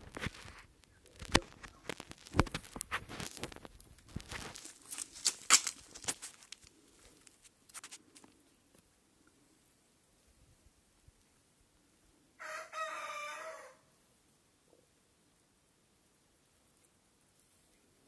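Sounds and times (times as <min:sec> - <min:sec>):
rustling and crackling: 0:00.0 - 0:08.9.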